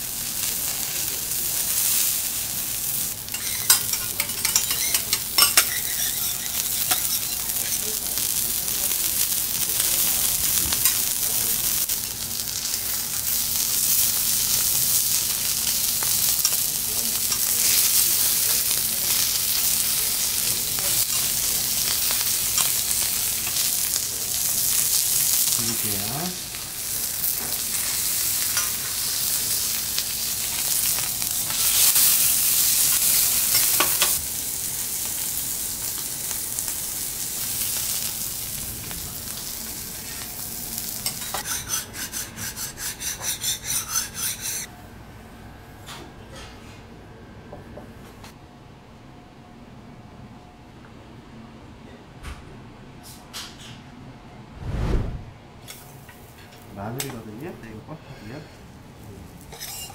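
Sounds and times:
beef sizzling on a griddle: 0.0s - 44.7s, 59.4s - 59.9s
metal spatulas scraping: 3.3s - 7.8s, 41.1s - 44.7s, 59.5s - 59.9s.

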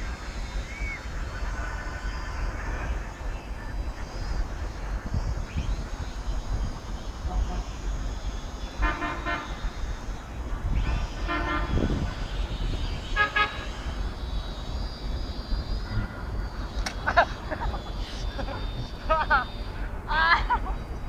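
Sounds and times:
wind rumble on microphone: 0.0s - 19.3s
vehicle horns beeping: 7.2s - 9.8s, 10.7s - 20.9s.

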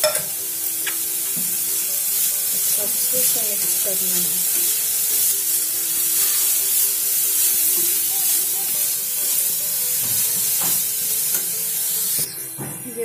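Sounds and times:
cauliflower sizzling in hot oil: 0.0s - 13.0s
metal spatula scraping pan: 2.6s - 8.5s.

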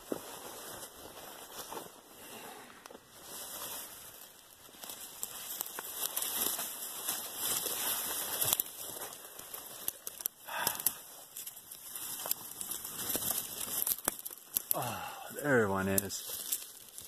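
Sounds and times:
footsteps crackling on dry leaves: 0.0s - 17.0s
branches brushing past: 3.2s - 14.8s.

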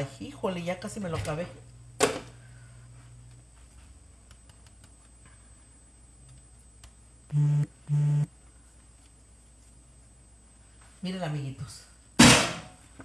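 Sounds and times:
low buzzes: 7.3s - 8.3s.

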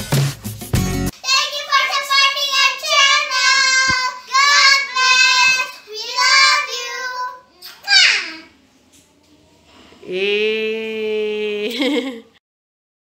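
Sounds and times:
girls singing in high voices: 1.3s - 7.5s.

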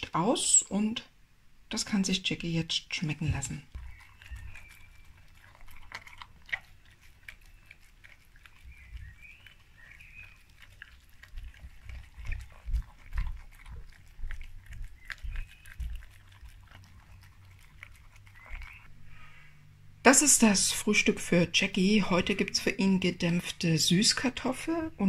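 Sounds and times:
dog eating from metal bowl: 3.0s - 18.9s.

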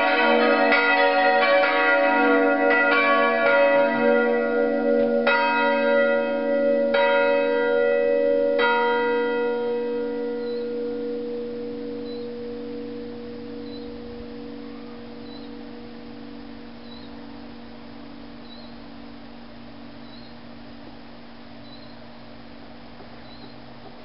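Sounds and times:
church bells pealing: 0.0s - 19.2s.

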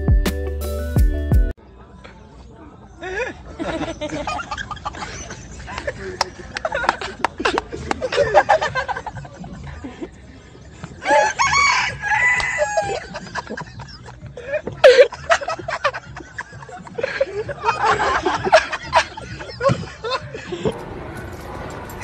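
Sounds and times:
rooster crowing: 11.0s - 13.1s.

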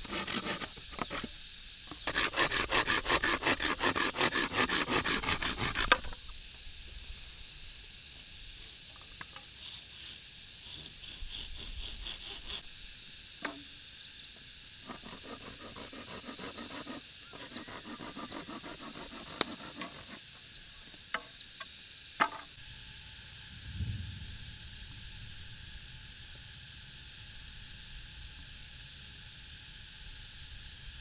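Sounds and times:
rhythmic rasping strokes on bamboo: 0.0s - 6.3s, 8.1s - 12.7s, 14.7s - 22.5s
insect drone: 0.0s - 31.0s.

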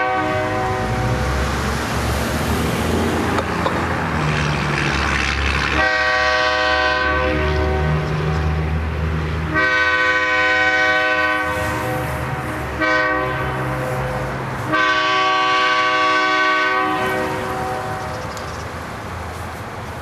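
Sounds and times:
locomotive air horn blasts: 0.0s - 1.2s, 5.7s - 8.3s, 9.5s - 18.2s
locomotive engine rumbling: 0.0s - 20.0s.

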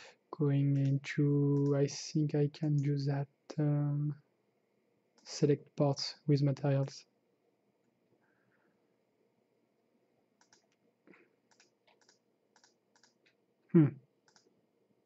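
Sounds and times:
computer mouse clicks: 1.6s - 1.9s, 10.4s - 10.8s, 11.5s - 13.4s, 14.2s - 14.5s
person humming hmm: 13.7s - 14.0s.

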